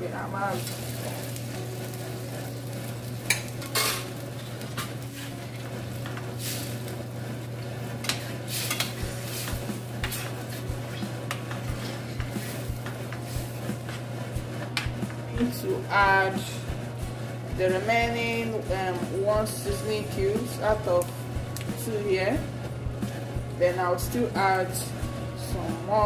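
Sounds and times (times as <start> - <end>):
steady low hum: 0.0 - 26.0
spatula scraping frying pan: 0.6 - 20.8.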